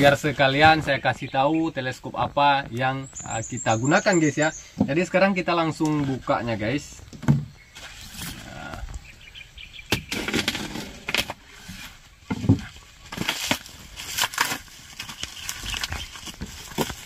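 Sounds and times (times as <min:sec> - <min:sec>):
plastic wrapping crinkling and tearing: 0:13.0 - 0:17.0.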